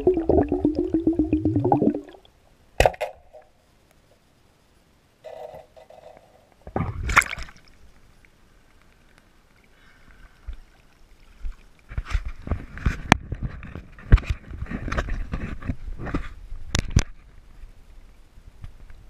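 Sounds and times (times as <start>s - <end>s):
water splashing and sloshing: 6.6s - 8.3s, 9.0s - 15.0s.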